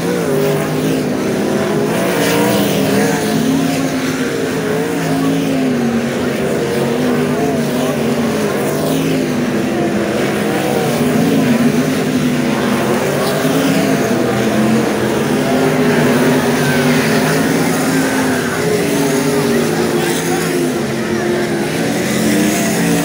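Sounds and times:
racing car engines: 0.0s - 23.0s.

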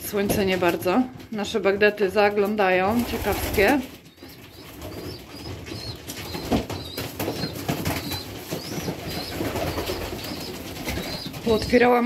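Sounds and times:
wing flaps: 3.0s - 11.5s
pigeons cooing: 3.3s - 11.7s.

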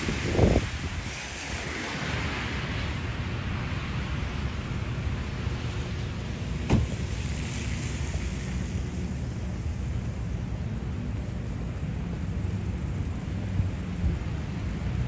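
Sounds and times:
low traffic rumble: 0.0s - 15.0s
tyres hissing through slush: 7.1s - 9.4s.

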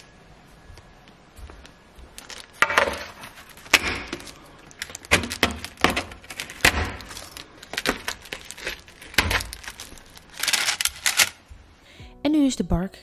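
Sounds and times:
knife chopping hard chocolate: 3.7s - 4.3s, 5.1s - 7.1s.

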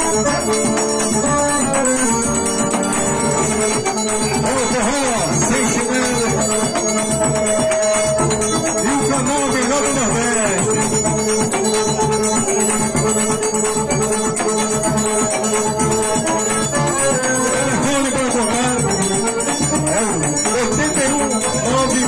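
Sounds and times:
accordion melody: 0.0s - 22.0s
ringing triangle: 0.0s - 22.0s.

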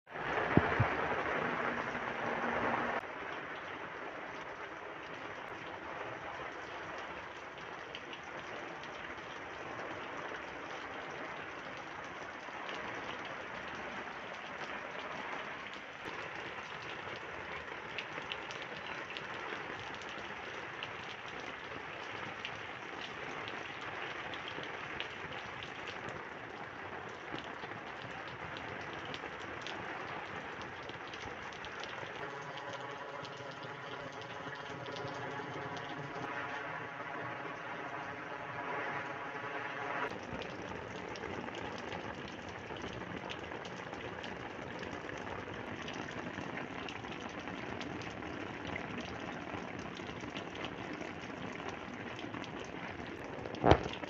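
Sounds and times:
heavy rain on water: 0.0s - 54.0s
multi-tone hum: 0.1s - 3.0s, 32.1s - 40.1s.

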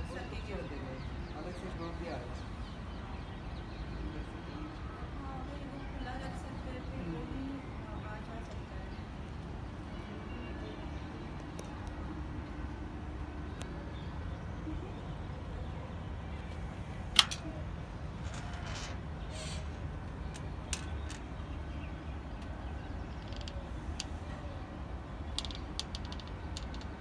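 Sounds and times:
low city hum: 0.0s - 27.0s
sharp clicks: 17.2s - 17.5s, 25.3s - 27.0s.

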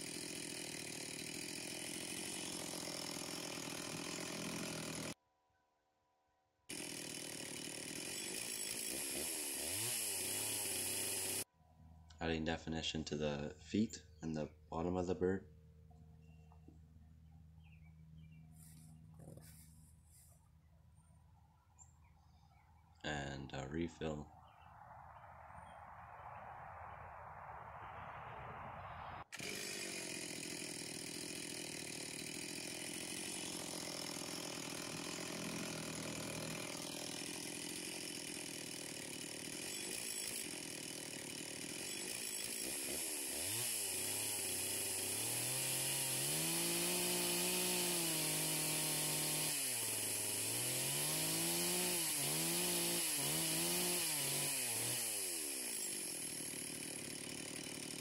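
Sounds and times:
chainsaw cutting wood: 0.0s - 5.2s, 6.7s - 11.5s, 18.2s - 20.4s, 29.2s - 58.0s.

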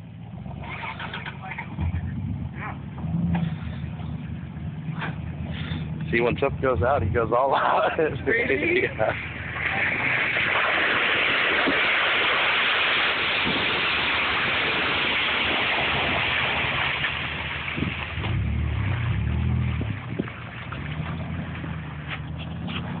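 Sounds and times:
vehicle engine revving: 0.0s - 11.6s, 14.2s - 23.0s
loud steady rushing noise: 6.1s - 18.2s.

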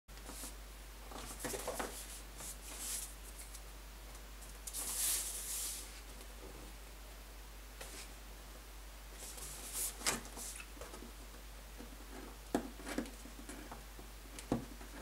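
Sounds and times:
steady low hum: 0.1s - 15.0s.

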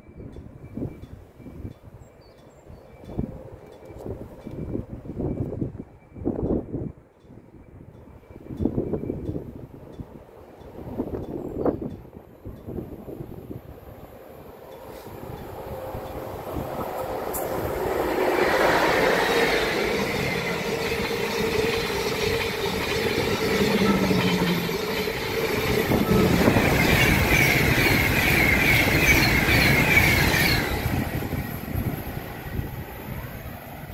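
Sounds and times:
train passing at speed: 0.0s - 33.9s
wheels clattering over rail joints: 16.8s - 31.8s.

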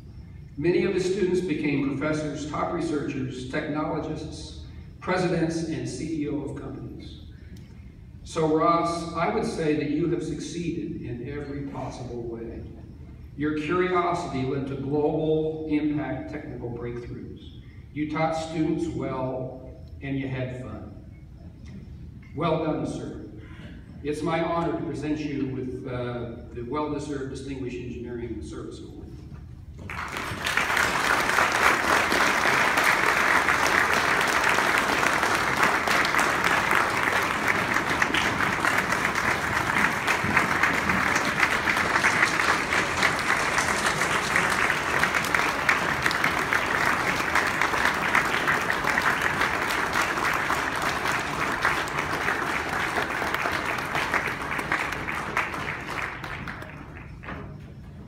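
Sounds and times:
audience applauding: 29.8s - 57.3s.

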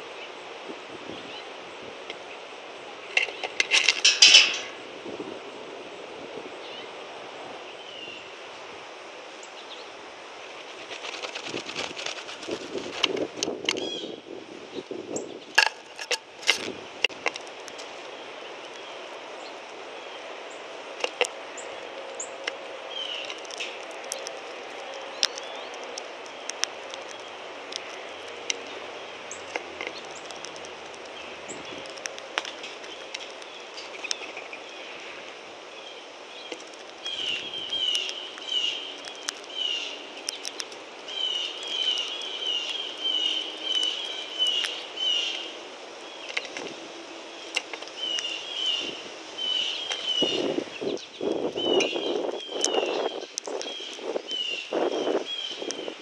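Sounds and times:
outdoor background noise: 0.0s - 56.0s
bird cracking seeds: 10.5s - 13.9s, 15.5s - 18.1s, 21.0s - 34.5s, 36.4s - 42.8s
songbird chirping: 17.0s - 56.0s.

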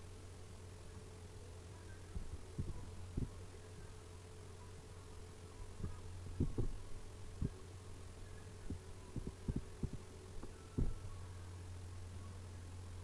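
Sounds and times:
steady low hum: 0.0s - 13.0s
soft low thuds: 2.2s - 3.4s, 5.7s - 7.6s, 8.6s - 11.1s.

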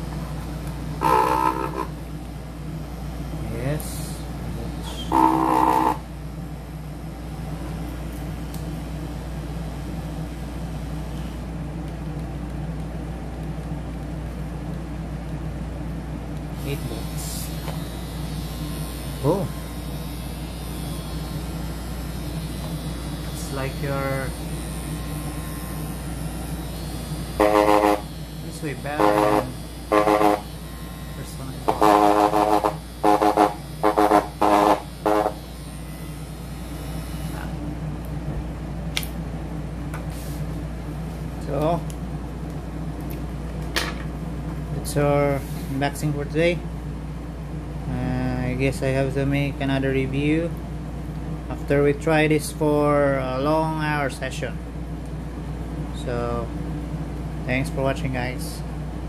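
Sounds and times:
tattoo pen motor hum: 0.0s - 7.1s, 16.3s - 39.3s.

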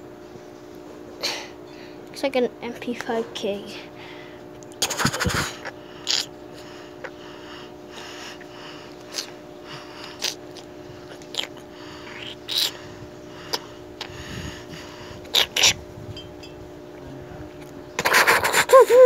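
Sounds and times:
low hum: 2.9s - 18.1s.

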